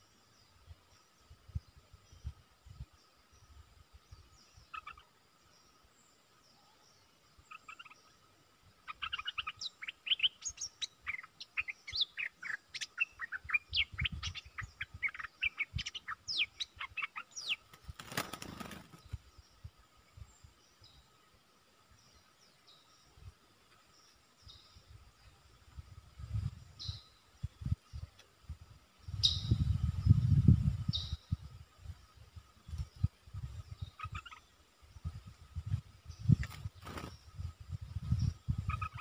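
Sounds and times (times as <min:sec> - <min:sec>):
wing flapping: 0:17.6 - 0:19.3, 0:36.3 - 0:37.3
bulbuls chattering calls: 0:38.7 - 0:39.0.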